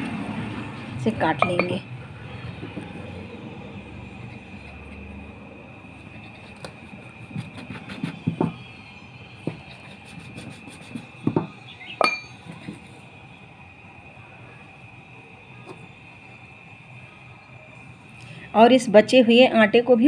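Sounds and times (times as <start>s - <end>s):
steel bowl clinking on a plate: 1.4s - 1.8s, 12.0s - 12.4s.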